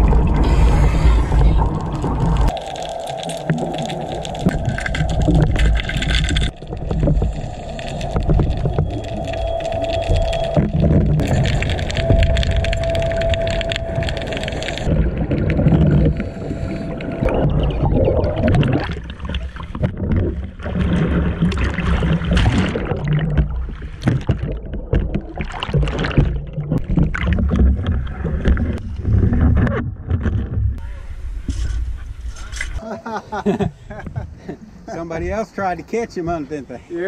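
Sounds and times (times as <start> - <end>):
steady underwater whine: 0.0 - 22.7
water sloshing and splashing: 0.0 - 30.8.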